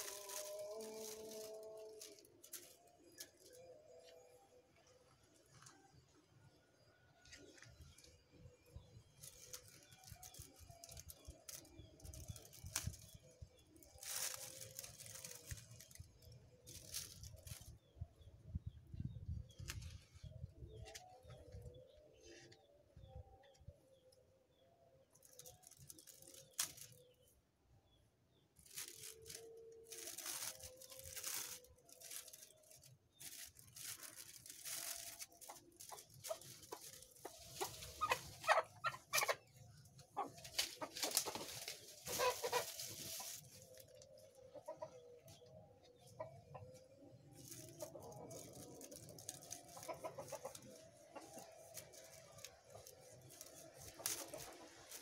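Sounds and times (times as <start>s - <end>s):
plastic bag crinkling: 0.0s - 3.7s, 9.0s - 17.8s, 25.1s - 27.2s, 28.6s - 39.6s, 40.2s - 44.1s, 47.4s - 55.0s
chickens clucking: 35.5s - 46.8s, 49.2s - 52.2s.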